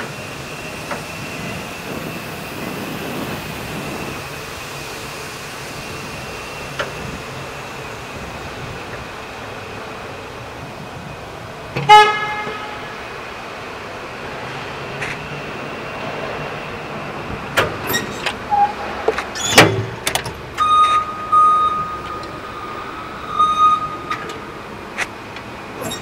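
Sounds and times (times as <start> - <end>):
industrial hum: 0.0 - 26.0
horn toot: 11.9 - 12.9.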